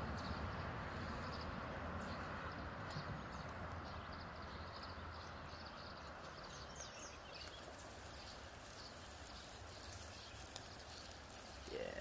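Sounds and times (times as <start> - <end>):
fish sizzling on grill: 7.5 - 12.0.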